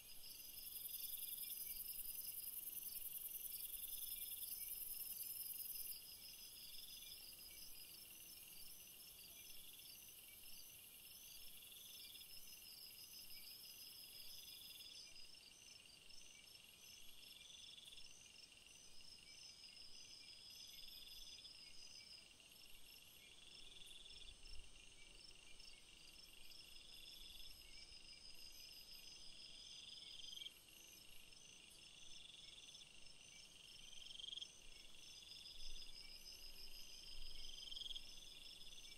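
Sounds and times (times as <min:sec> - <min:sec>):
insect chirping: 0:00.0 - 0:38.9.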